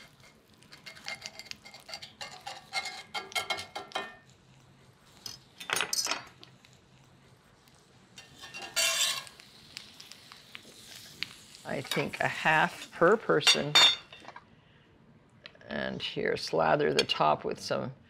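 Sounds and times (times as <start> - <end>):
knife scraping and clinking on pan: 0.0 - 4.2, 8.2 - 9.4, 11.8 - 12.2.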